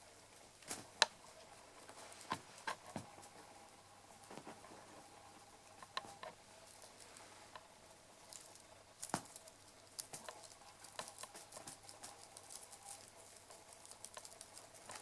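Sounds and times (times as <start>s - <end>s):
faint steady hum: 0.0s - 15.0s
faint clicks and taps: 1.8s - 3.5s, 5.7s - 7.7s, 8.3s - 15.0s.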